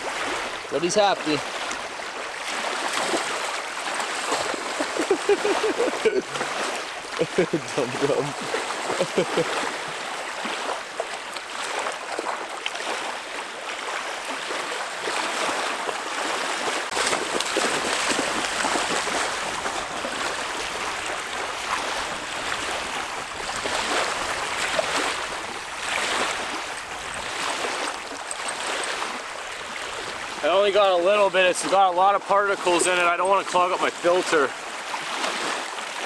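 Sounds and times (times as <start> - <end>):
waves lapping on sandy shore: 0.0 - 36.0.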